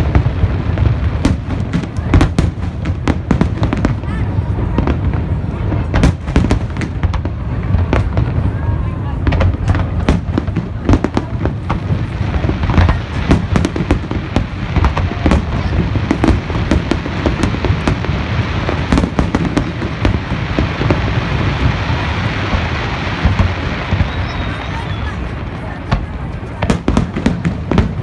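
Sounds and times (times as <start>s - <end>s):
firework crackle: 0.0s - 28.0s.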